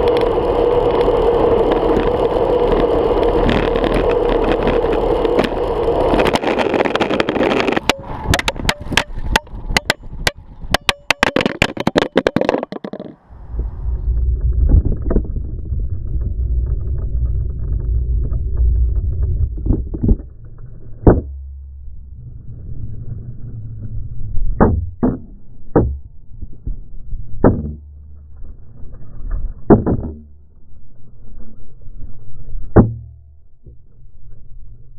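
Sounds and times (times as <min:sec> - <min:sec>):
muffled low rumble: 0:00.0 - 0:10.8, 0:13.2 - 0:34.9
sharp knocks: 0:07.8 - 0:13.2, 0:21.0 - 0:21.6, 0:24.6 - 0:26.1, 0:27.4 - 0:27.9.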